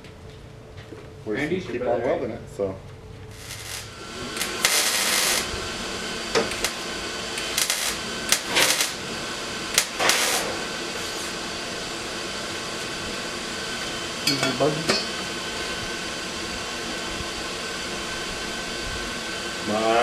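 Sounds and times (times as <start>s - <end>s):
welder arc crackling: 3.3s - 12.2s.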